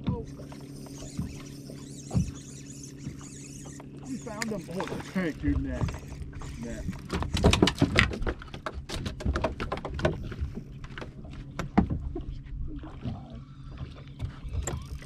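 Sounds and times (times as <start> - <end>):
low steady hum: 0.0 - 15.0
water slapping against boat hull: 0.0 - 15.0
knocks and clatter on deck: 7.0 - 12.3.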